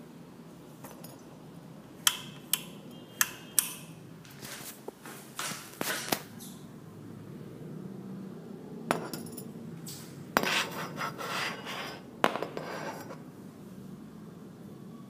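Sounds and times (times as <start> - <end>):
scraping and rubbing: 10.4 - 13.2.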